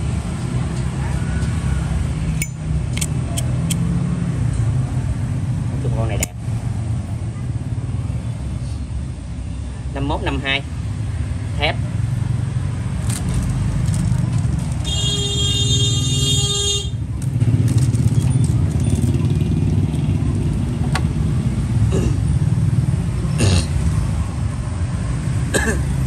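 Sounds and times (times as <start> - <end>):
street traffic rumble: 0.0 - 26.0
motorbikes passing: 10.8 - 26.0
vehicle horn: 14.8 - 17.0.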